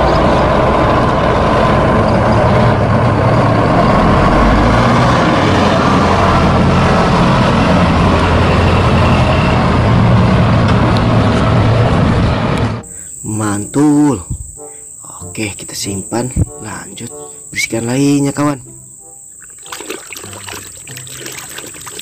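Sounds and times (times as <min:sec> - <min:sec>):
diesel bus engine driving past: 0:00.0 - 0:12.8.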